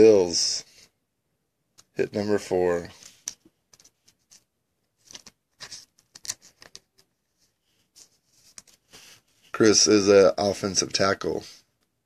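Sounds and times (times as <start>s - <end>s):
card rustling and ticking: 2.9s - 9.5s.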